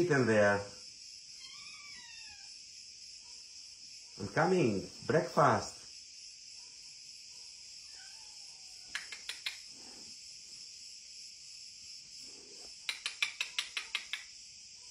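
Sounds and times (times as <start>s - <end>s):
insects shrilling: 0.0s - 14.9s
sharp clicks: 8.9s - 9.7s, 12.8s - 14.3s.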